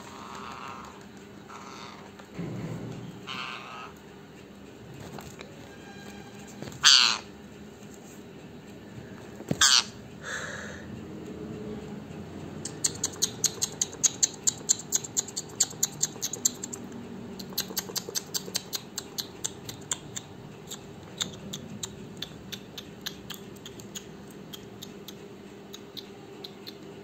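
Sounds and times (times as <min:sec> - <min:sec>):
parakeet making sharp clicks: 0:12.6 - 0:26.9.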